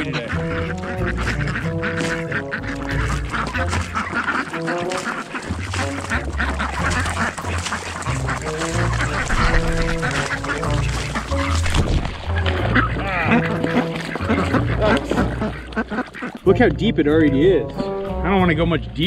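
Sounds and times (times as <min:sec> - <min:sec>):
background music: 0:00.0 - 0:19.0
ducks quacking: 0:00.0 - 0:19.0.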